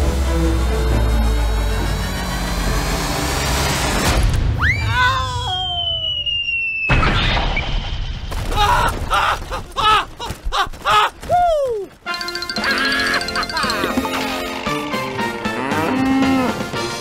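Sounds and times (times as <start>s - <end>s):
falling whistle tones: 4.6s - 7.0s
cartoon boom crash: 6.9s - 8.3s
short wavering cries: 12.1s - 14.8s.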